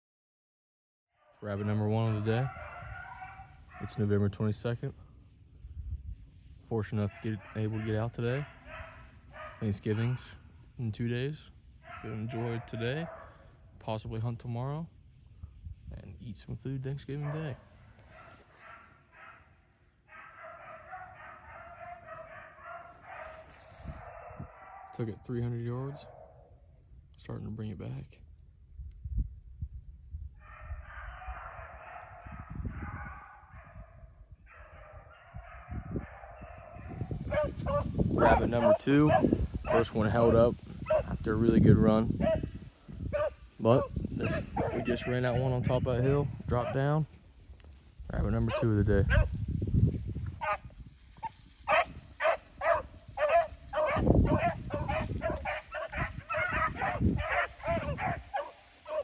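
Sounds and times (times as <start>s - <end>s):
hounds baying: 1.3s - 4.2s, 6.9s - 10.6s, 11.8s - 13.6s, 17.2s - 25.0s, 30.4s - 47.1s, 48.4s - 49.4s, 50.4s - 59.0s
wind rumble on microphone: 2.0s - 10.8s, 15.2s - 16.6s, 21.0s - 25.3s, 26.0s - 59.0s.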